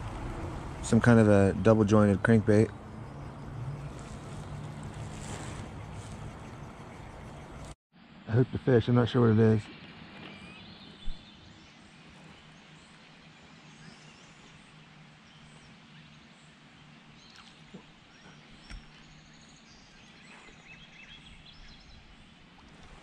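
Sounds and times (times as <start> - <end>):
bird chirps: 1.9 - 7.8.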